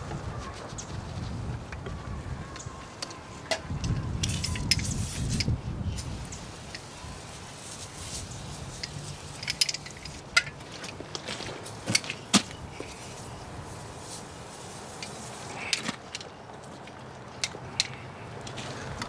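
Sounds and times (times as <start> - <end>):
tools clicking and knocking: 8.8 - 11.0, 15.0 - 18.6.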